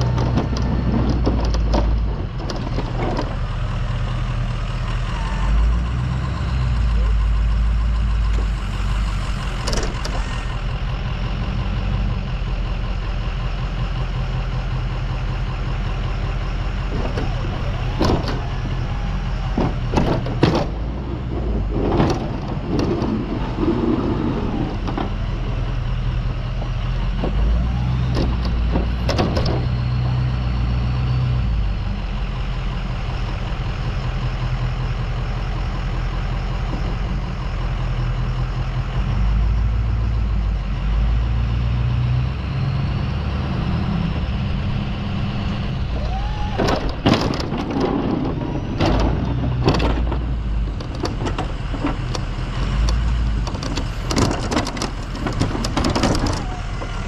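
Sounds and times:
sharp clacks and knocks: 0.0s - 3.6s, 16.9s - 25.8s, 46.6s - 57.0s
diesel truck engine running: 0.0s - 57.0s.

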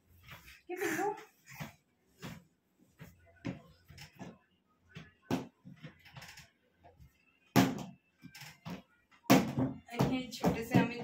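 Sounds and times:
household objects knocking: 9.3s - 11.0s.

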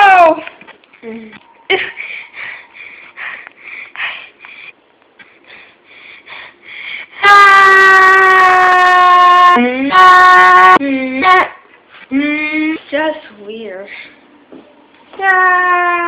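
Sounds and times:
quiet breathy sounds: 1.0s - 7.2s
girl screaming loudly: 15.2s - 16.0s.

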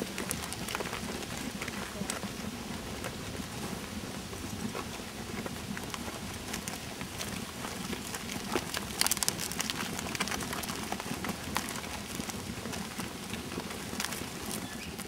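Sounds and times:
sheep hooves clicking on path: 0.0s - 15.0s
sheep cropping grass: 4.7s - 15.0s.

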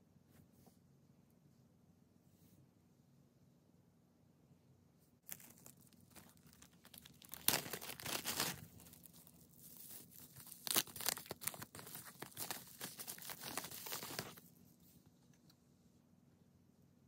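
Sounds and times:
bubble wrap crinkling: 5.2s - 14.5s.

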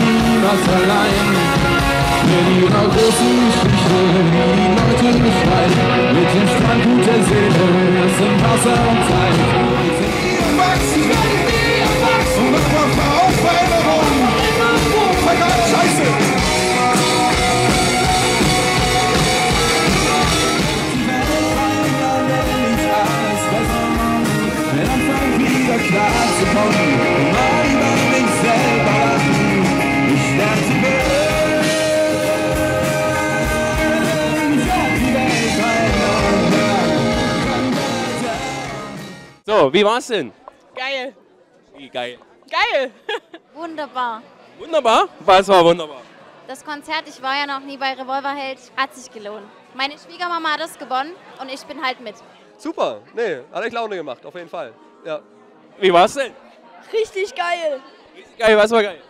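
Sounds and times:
person singing: 0.0s - 39.2s
electric guitars: 0.0s - 39.4s
drums: 0.0s - 39.7s.

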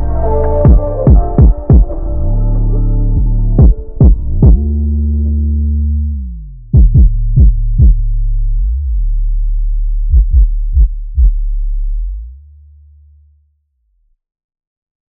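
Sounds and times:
deep sustained bass tone: 0.0s - 14.0s
drum machine kick hits: 0.6s - 2.0s, 3.6s - 4.7s, 6.8s - 8.1s, 10.1s - 11.4s.

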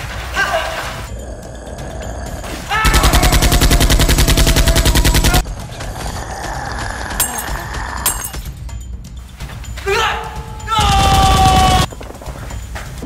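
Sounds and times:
automatic gunfire: 2.9s - 5.4s.

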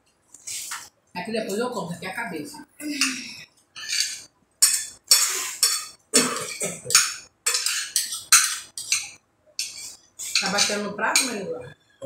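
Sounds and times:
cutlery clinking and scraping plates: 3.8s - 11.4s.

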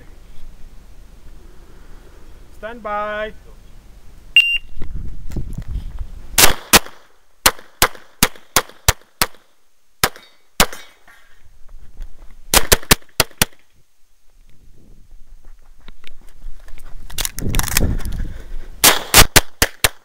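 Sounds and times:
shot timer beep: 4.4s - 4.7s
pistol shots: 6.4s - 9.4s, 10.0s - 10.9s, 12.5s - 13.6s, 18.8s - 20.0s.

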